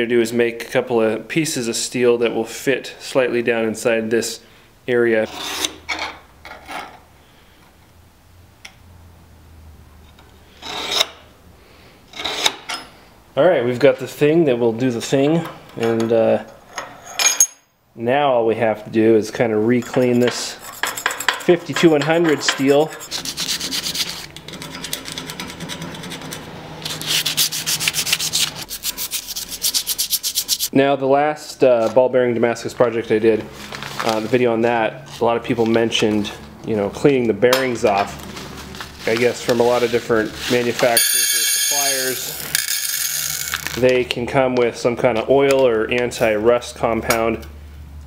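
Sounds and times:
scribe scratching steel plate: 19.7s - 30.7s.

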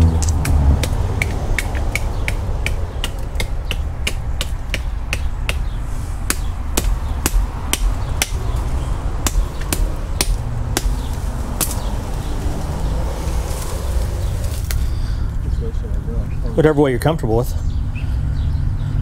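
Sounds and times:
low rumble: 0.0s - 16.6s
knife chopping into wood: 9.2s - 11.9s.

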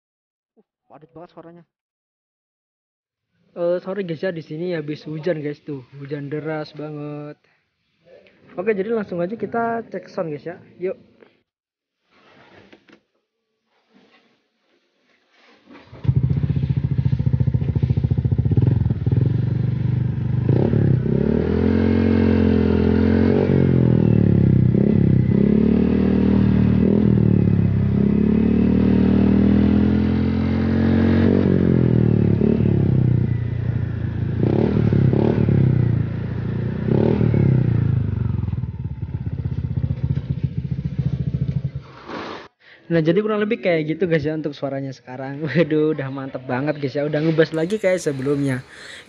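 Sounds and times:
scooter engine idling and revving: 15.7s - 42.2s.

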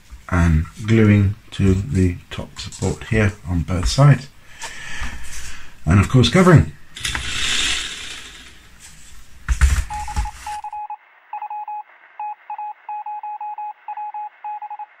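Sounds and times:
handling noise with knocks: 8.2s - 10.6s
electronic beeps: 9.9s - 15.0s.

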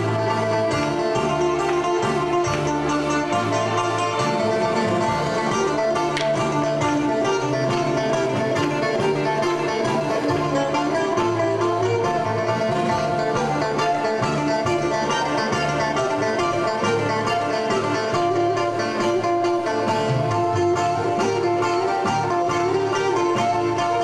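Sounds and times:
bouzouki plucked melody: 0.0s - 24.0s
keyboard: 0.0s - 24.0s
sustained bass notes: 0.0s - 24.0s.

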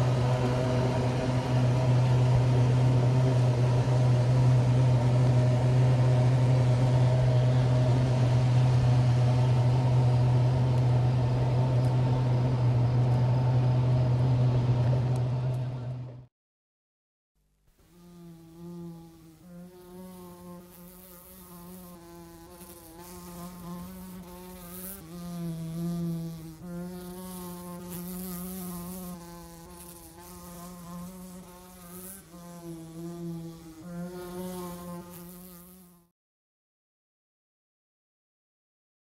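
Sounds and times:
insect wing buzzing: 17.8s - 36.1s.

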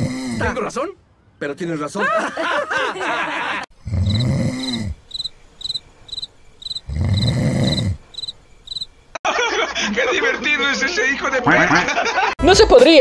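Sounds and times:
person snoring: 0.0s - 0.6s, 3.8s - 5.0s, 6.8s - 8.0s
cricket chirping: 3.9s - 9.2s.

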